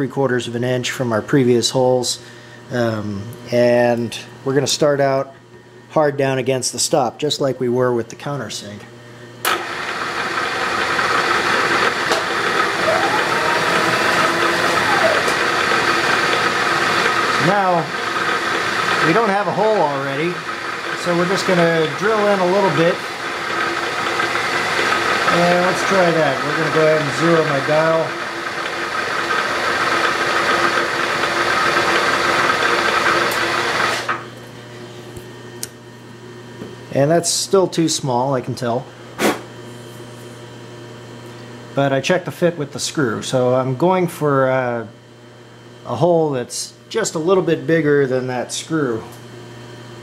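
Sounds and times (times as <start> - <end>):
milling machine whirring: 8.8 - 35.9
drill cutting metal: 9.4 - 34.2.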